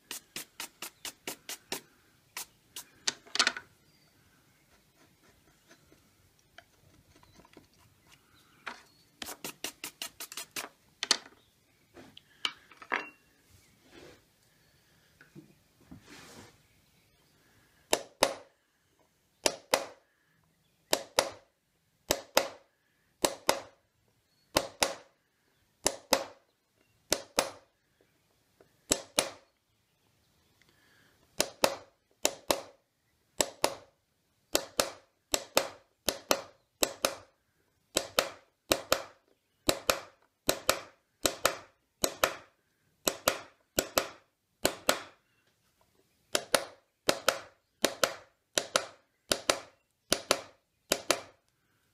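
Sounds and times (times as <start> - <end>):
hammer tapping punch into wood: 19.4 - 20.0, 20.9 - 21.4, 22.1 - 22.6, 23.2 - 23.7, 24.5 - 25.1, 25.8 - 26.4, 28.9 - 29.4, 31.4 - 32.7, 33.4 - 33.9, 34.5 - 37.3, 37.9 - 45.2, 46.3 - 51.4.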